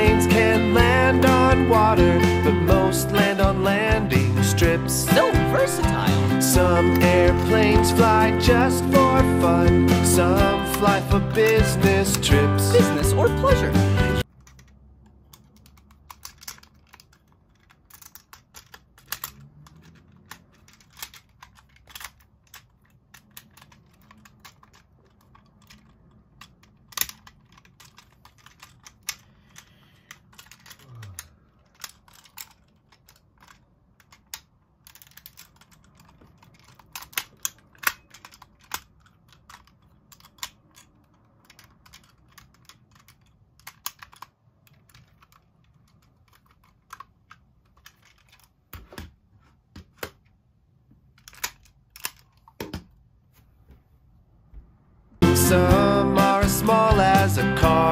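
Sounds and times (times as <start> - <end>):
plastic toy clicking and snapping: 6.4 - 13.6, 14.2 - 48.9, 51.0 - 52.9.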